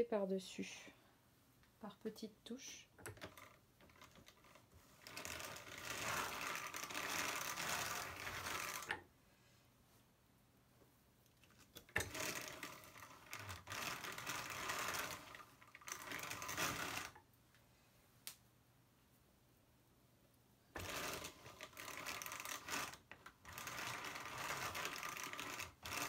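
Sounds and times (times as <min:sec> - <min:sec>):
hand-cranked drum carder turning: 0:03.0 - 0:09.0, 0:11.9 - 0:17.2, 0:20.8 - 0:26.0.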